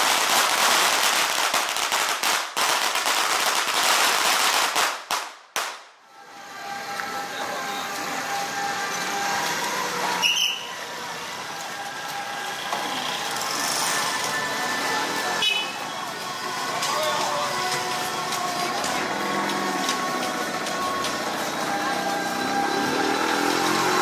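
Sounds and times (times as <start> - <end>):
firecrackers crackling: 0.0 - 6.0, 6.8 - 24.0
street background noise: 0.0 - 24.0.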